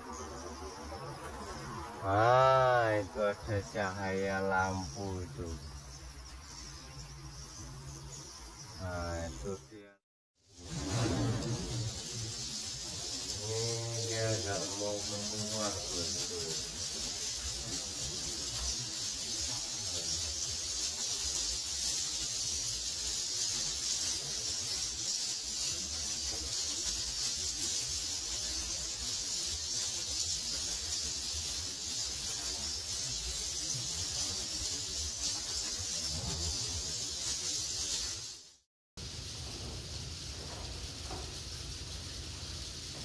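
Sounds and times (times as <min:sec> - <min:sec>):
swiftlets twittering: 0:10.6 - 0:38.4.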